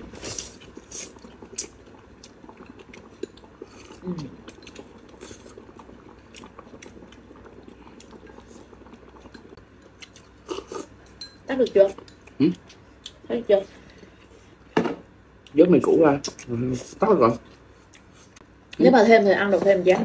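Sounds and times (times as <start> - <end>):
slurping and chewing: 0.0 - 13.2
hot pot simmering: 0.0 - 13.9.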